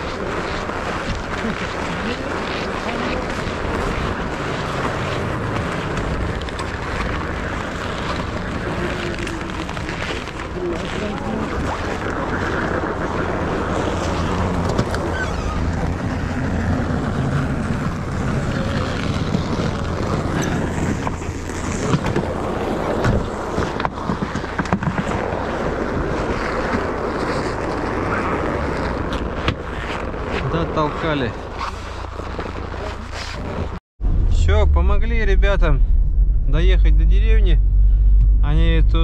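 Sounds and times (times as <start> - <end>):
wind and road noise: 0.0 - 39.0
car engine running: 34.0 - 39.0.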